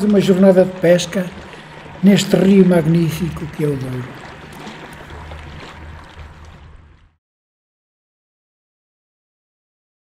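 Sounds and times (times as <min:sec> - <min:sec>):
river water rumbling: 0:00.0 - 0:07.2.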